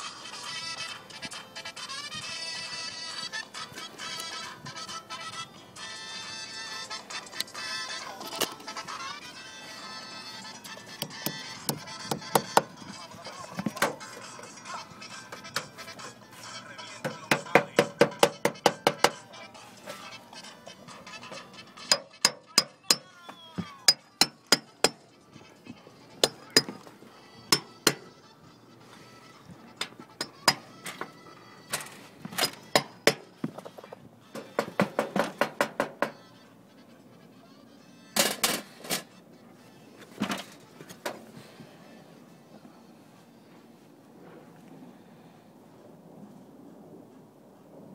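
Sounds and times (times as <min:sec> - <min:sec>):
hammer tapping metal: 0:11.0 - 0:12.7, 0:17.0 - 0:19.2, 0:21.8 - 0:23.1, 0:23.9 - 0:25.0, 0:27.5 - 0:28.1, 0:32.7 - 0:33.2, 0:34.4 - 0:36.2.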